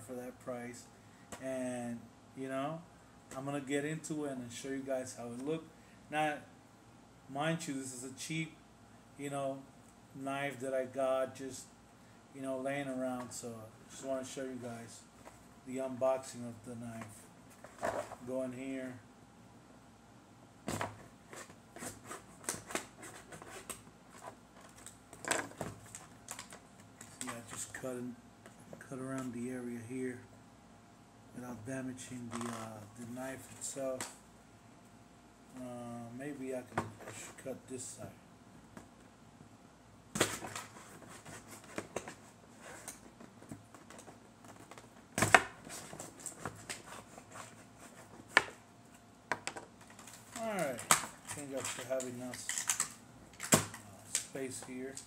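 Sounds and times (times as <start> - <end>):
packaging clicking and crackling: 24.6 - 27.6, 49.8 - 54.3.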